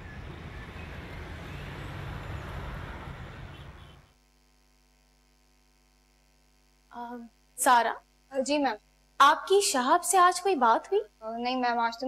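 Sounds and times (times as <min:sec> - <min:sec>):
outdoor rumble and hiss: 0:00.0 - 0:04.5
faint mains hum: 0:00.0 - 0:12.0.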